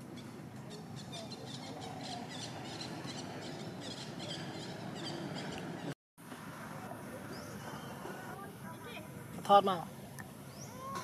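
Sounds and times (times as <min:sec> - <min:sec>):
birds chirping: 0:00.0 - 0:06.0, 0:07.2 - 0:09.0, 0:10.0 - 0:11.0
low outdoor background noise: 0:00.0 - 0:11.0.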